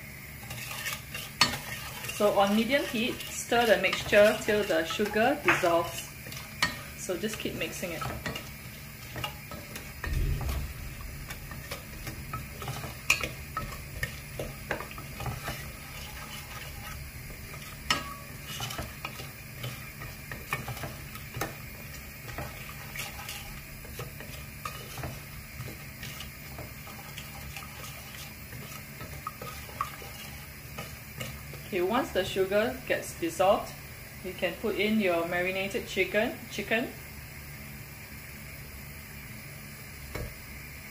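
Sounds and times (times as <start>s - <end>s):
faint sauce sizzle: 0.0s - 40.9s
spatula scraping and knocking pot: 0.4s - 31.8s.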